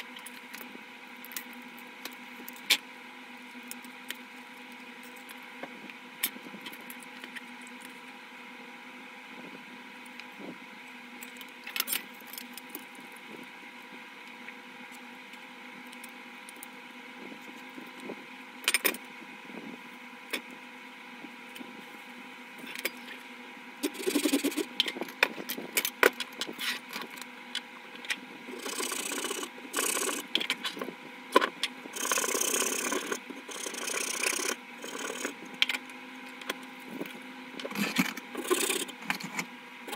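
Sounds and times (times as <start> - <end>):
steady background hum: 0.0 - 39.9.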